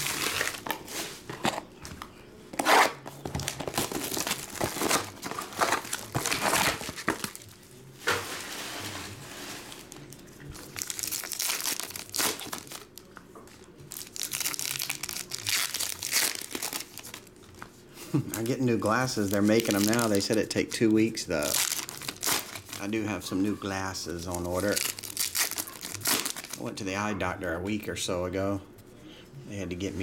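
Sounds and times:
foil wrappers crinkling and tearing: 0:00.0 - 0:01.7, 0:02.6 - 0:07.6, 0:08.2 - 0:13.1, 0:13.8 - 0:23.1, 0:24.1 - 0:26.7.

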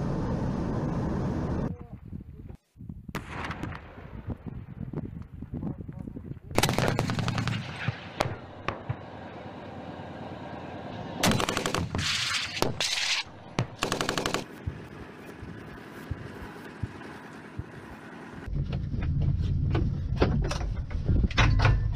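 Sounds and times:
automatic gunfire bursts: 0:06.6 - 0:07.8, 0:11.2 - 0:14.5.

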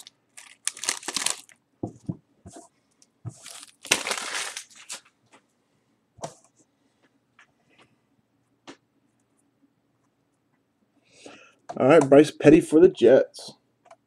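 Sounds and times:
foil wrapper crinkling: 0:00.0 - 0:01.6, 0:03.4 - 0:05.1.

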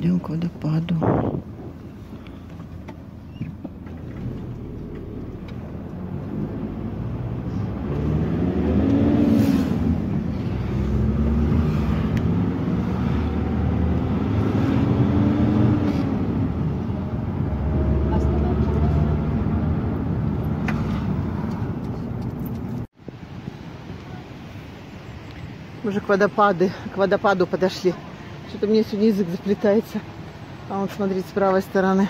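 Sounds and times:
vehicle engine revving: 0:03.8 - 0:22.9.

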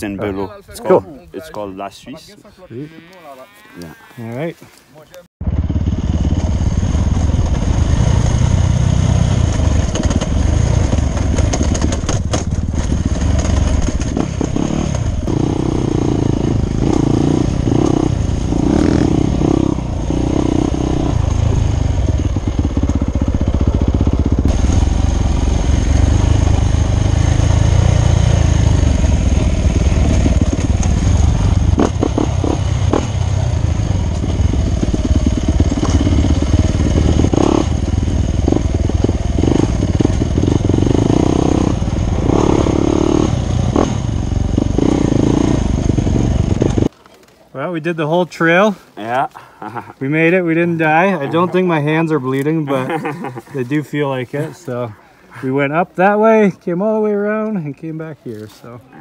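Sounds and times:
dirt bike engine revving: 0:05.4 - 0:46.9, 0:49.6 - 0:57.5
bike knocks and rattles: 0:09.8 - 0:14.9.

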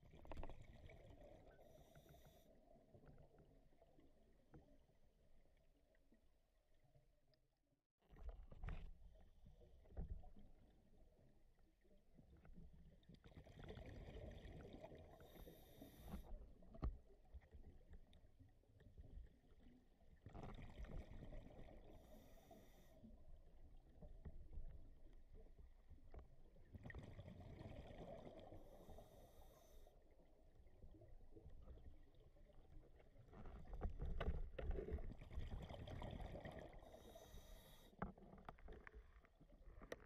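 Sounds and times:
scuba regulator breathing bubbles: 0:13.8 - 0:16.4, 0:20.6 - 0:23.1, 0:27.1 - 0:30.0, 0:35.2 - 0:38.0.

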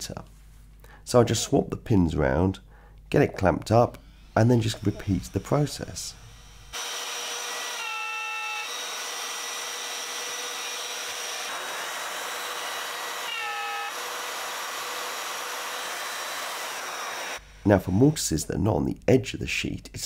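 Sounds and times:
router high whine: 0:04.0 - 0:18.2
dust extractor hiss: 0:11.3 - 0:18.3.

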